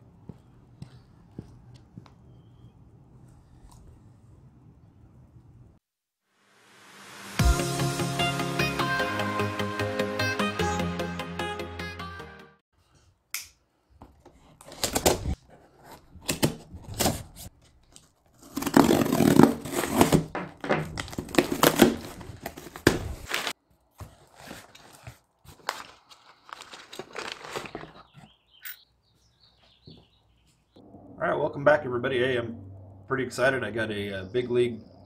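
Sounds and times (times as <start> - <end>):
cardboard rustling and tearing: 14.4 - 28.4
packing tape ripping: 14.6 - 15.4, 16.2 - 23.6, 24.5 - 28.0.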